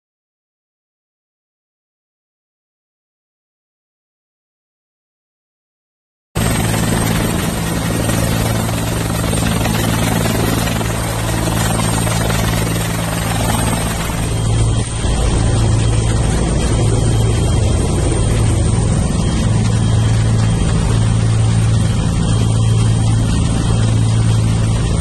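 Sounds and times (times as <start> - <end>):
helicopter rotor and engine: 6.4 - 25.0.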